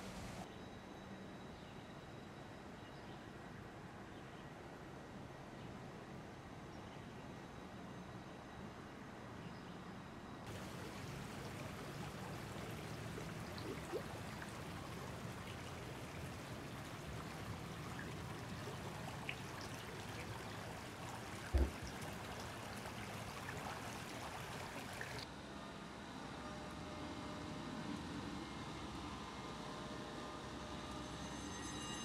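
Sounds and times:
floodwater rushing: 0.0 - 0.4, 10.5 - 25.2
low thump: 21.5 - 21.9.

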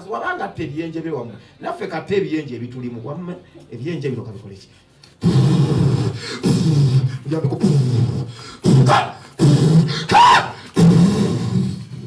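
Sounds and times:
man making short vocal bursts: 5.2 - 11.6
high-pitched cry: 10.0 - 10.9.

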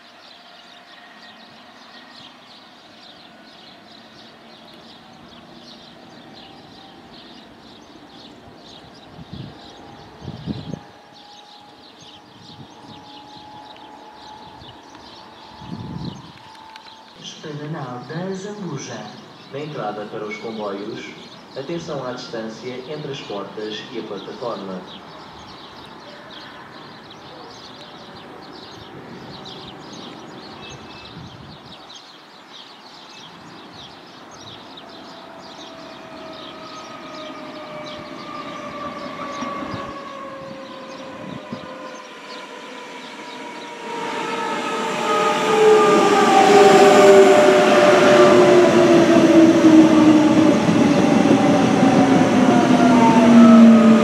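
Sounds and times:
electric train motors whining: 5.4 - 17.2, 35.4 - 54.0.

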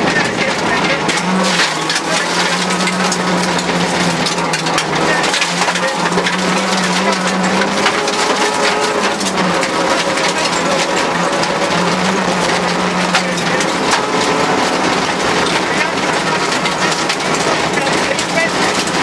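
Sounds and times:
car engine running hard: 0.0 - 19.0.

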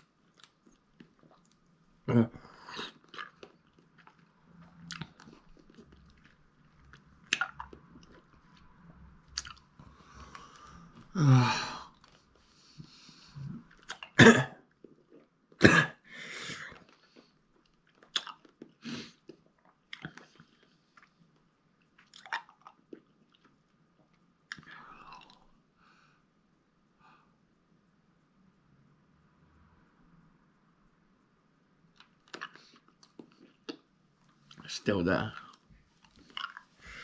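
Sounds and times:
man groaning: 2.1 - 2.4, 11.1 - 11.9
wet mouth clicks and smacks: 7.2 - 8.2, 9.4 - 9.7, 18.0 - 20.4, 32.0 - 33.9
man coughing: 14.2 - 14.6, 15.6 - 16.0.

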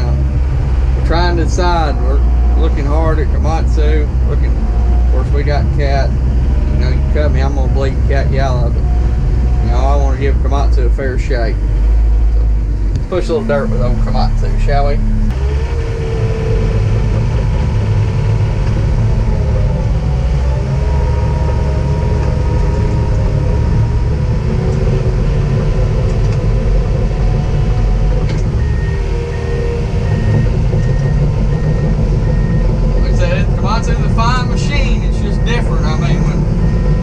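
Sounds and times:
dozer diesel engine running: 0.0 - 37.0
high beeps: 28.5 - 37.0.

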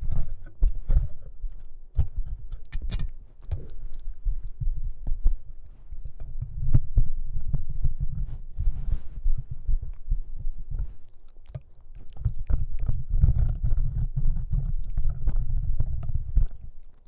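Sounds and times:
teeth clicking on mount: 0.0 - 4.6, 11.0 - 17.0
puppy chewing on microphone: 0.0 - 17.0.

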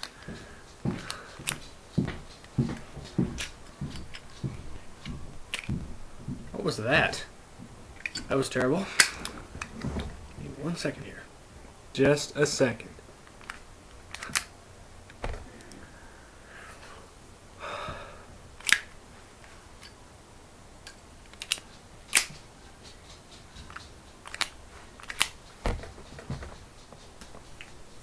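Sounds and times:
soft handling bumps: 0.0 - 16.1, 21.7 - 28.0.

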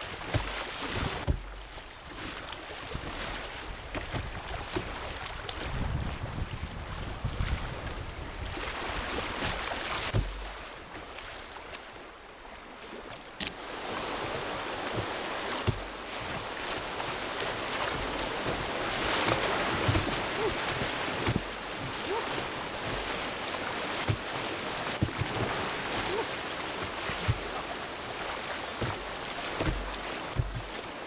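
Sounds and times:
water and paddle knocking hull: 0.0 - 31.0
whitewater rapids rushing: 13.5 - 31.0.

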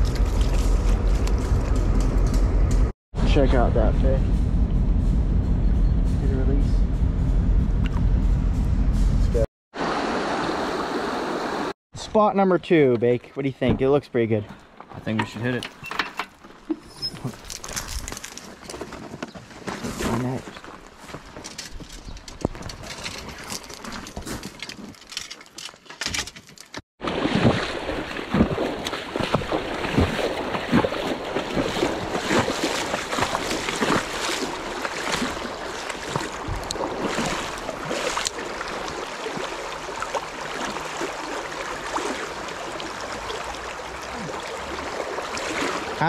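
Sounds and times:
stream rushing: 9.8 - 11.8, 27.0 - 46.0
handling knocks and rustles: 13.6 - 26.8.

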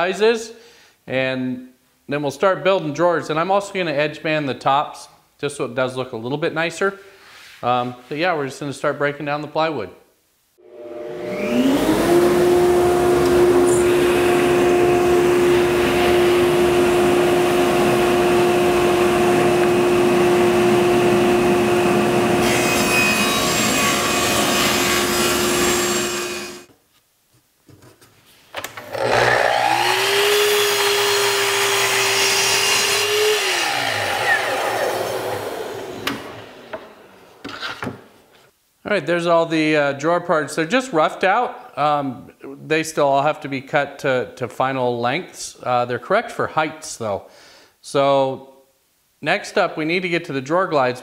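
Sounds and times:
table saw cutting plywood: 10.6 - 26.7, 28.8 - 37.6
miter saw cutting plywood: 10.7 - 26.7, 28.8 - 37.2.

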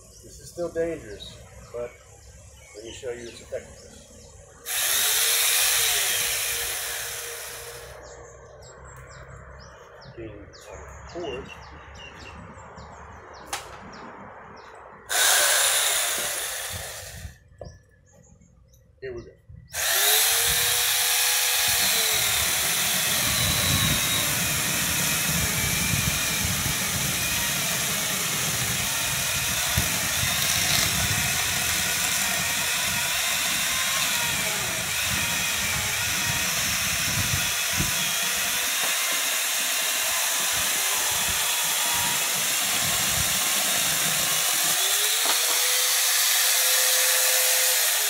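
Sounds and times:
electric chainsaw cutting wood: 4.6 - 8.2, 15.1 - 17.4, 19.7 - 48.0.

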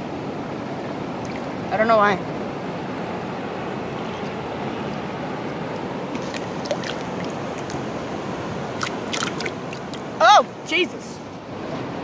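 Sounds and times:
water rushing over rocks: 0.0 - 12.0.

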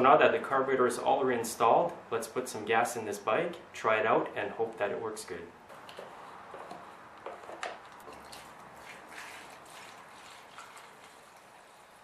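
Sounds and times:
liquid trickling into a tank: 8.1 - 12.0.

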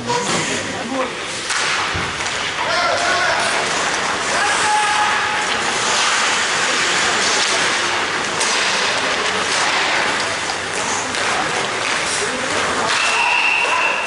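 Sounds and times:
skates scraping ice: 1.3 - 14.0
sharp clack: 1.5 - 2.5.

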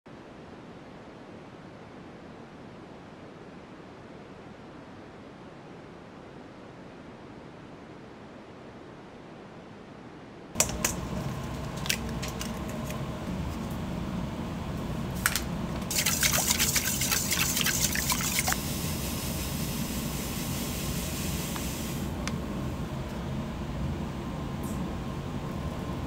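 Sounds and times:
low hum: 10.6 - 26.0
liquid splashing and running: 15.9 - 18.6.

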